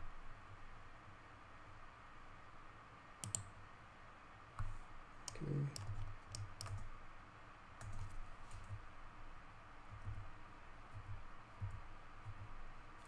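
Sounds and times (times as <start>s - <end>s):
mouse and keyboard clicks: 3.2s - 3.5s, 4.6s - 6.9s.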